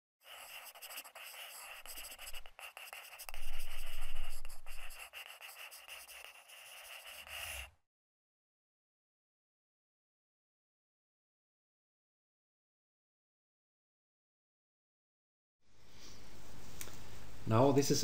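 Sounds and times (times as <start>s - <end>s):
pen scratching on paper: 0.2s - 7.7s.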